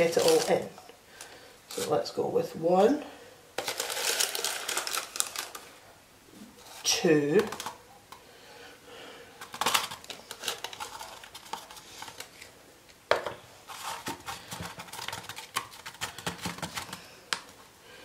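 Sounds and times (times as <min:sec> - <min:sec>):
paper rustling: 0:00.0 - 0:00.7, 0:03.6 - 0:05.7, 0:09.4 - 0:12.5, 0:13.7 - 0:17.1.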